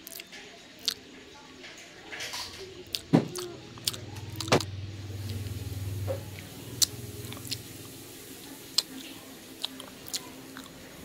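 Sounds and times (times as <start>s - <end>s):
mouth clicks and smacks chewing: 0.0s - 1.0s, 2.9s - 5.4s, 6.8s - 7.7s, 9.6s - 10.7s
low hum: 3.5s - 8.6s.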